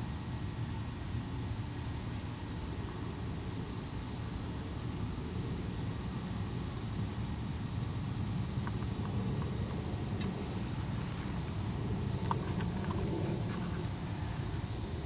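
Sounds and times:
cicadas droning: 0.0 - 15.0
low steady rumble: 2.6 - 15.0.

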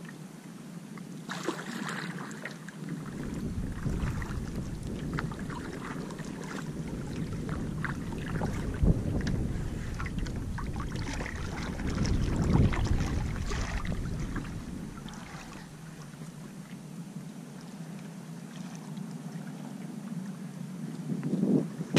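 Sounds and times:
water lapping against boat hull: 1.0 - 21.9
small splashes: 1.3 - 3.2, 3.8 - 16.2.

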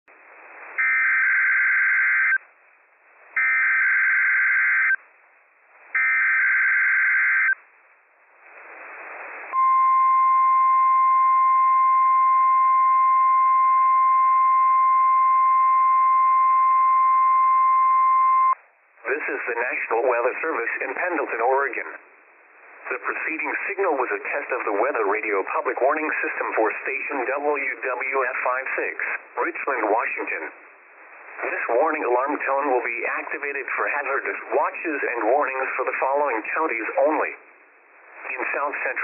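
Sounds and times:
receiver hiss: 0.1 - 39.0
steady warning alarm tone: 3.4 - 5.0, 6.0 - 7.6.

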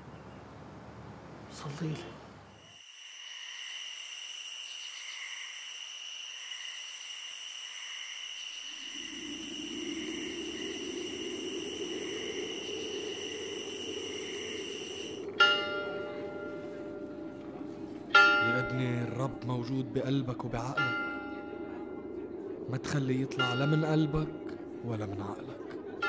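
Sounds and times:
insects chirring: 2.4 - 26.0
church bell ringing: 18.1 - 19.6, 20.7 - 21.6.

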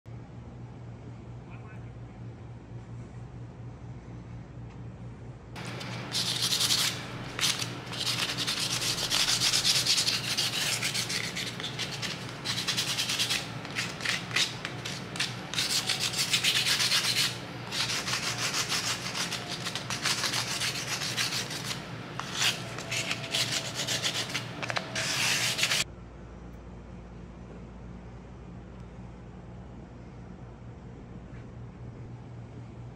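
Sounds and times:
steady low hum: 0.1 - 32.9
sanding strokes: 5.6 - 25.8.

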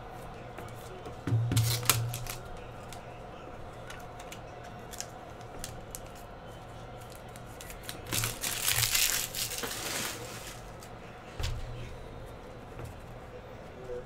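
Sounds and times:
foil pack clicks and rustles: 1.5 - 3.0, 3.9 - 6.3, 7.0 - 11.0
foil wrapper crinkling open: 1.6 - 3.0, 4.1 - 6.2, 7.0 - 10.9.

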